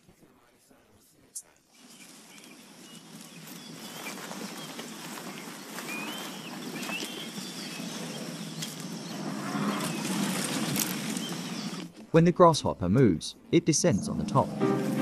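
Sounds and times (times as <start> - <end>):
rustle of dry vegetation: 1.7 - 11.9
short wavering bird calls: 1.8 - 11.9.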